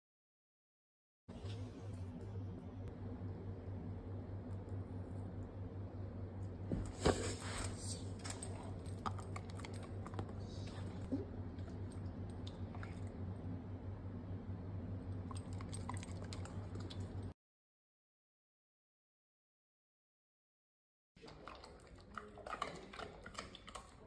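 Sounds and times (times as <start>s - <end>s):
steady low hum: 1.3s - 17.4s.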